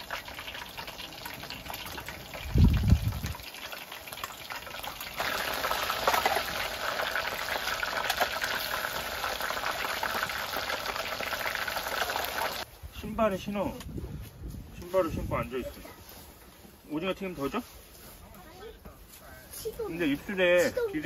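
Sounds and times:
food sizzling in hot oil: 0.0 - 12.7.

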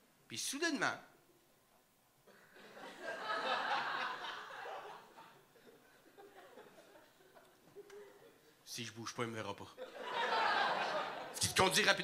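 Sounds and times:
audience laughing: 2.6 - 8.4, 9.8 - 11.7.

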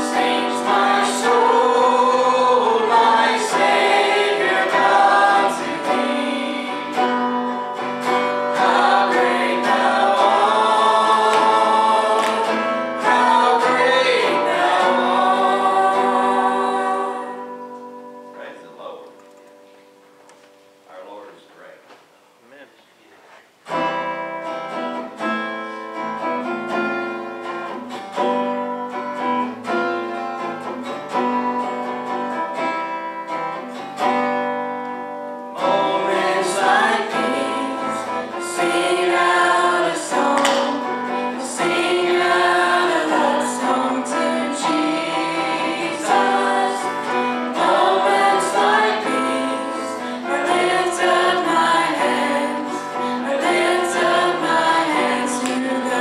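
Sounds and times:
group singing: 0.0 - 17.8, 35.5 - 56.0
acoustic guitar: 0.0 - 56.0.

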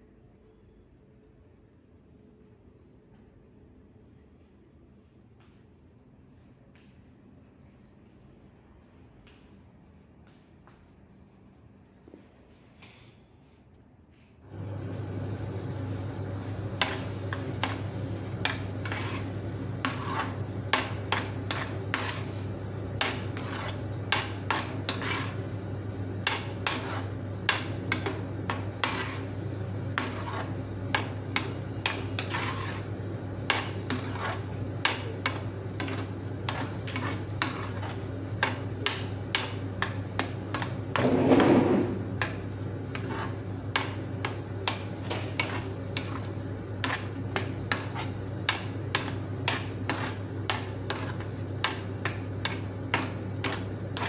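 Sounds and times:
steady low hum: 0.0 - 54.0
metal spoon scraping a pan: 16.7 - 54.0.

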